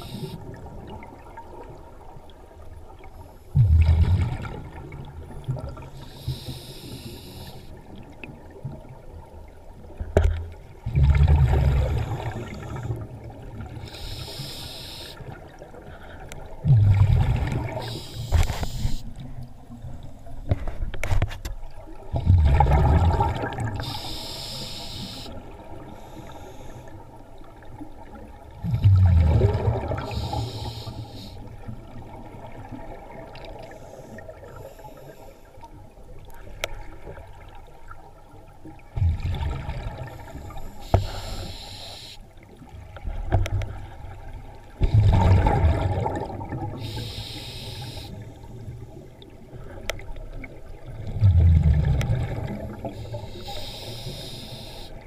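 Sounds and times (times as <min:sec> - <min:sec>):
regulator inhale hiss: 0:00.0 - 0:00.4, 0:06.0 - 0:07.8, 0:11.8 - 0:13.0, 0:13.8 - 0:15.4, 0:17.7 - 0:19.1, 0:23.8 - 0:27.0, 0:30.0 - 0:31.6, 0:33.7 - 0:35.6, 0:40.0 - 0:42.3, 0:46.7 - 0:48.8, 0:52.8 - 0:55.0
exhaled bubbles rumbling: 0:00.0 - 0:06.0, 0:07.8 - 0:13.8, 0:15.2 - 0:20.7, 0:21.6 - 0:23.9, 0:27.5 - 0:30.4, 0:36.4 - 0:40.7, 0:42.5 - 0:46.8, 0:48.6 - 0:53.2.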